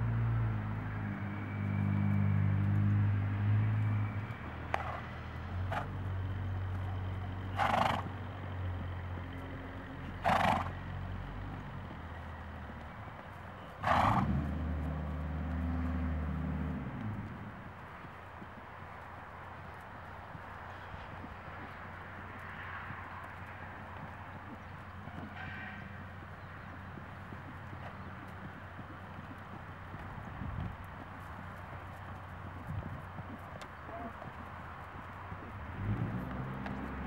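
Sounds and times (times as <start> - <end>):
horse snorting: 7.5 - 8.2, 10.1 - 10.8, 13.8 - 14.8.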